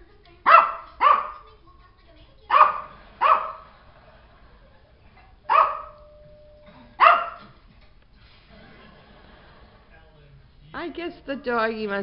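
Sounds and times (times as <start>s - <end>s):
small dog barking: 0.4s - 1.4s, 2.5s - 3.7s, 5.5s - 6.1s, 7.0s - 7.6s.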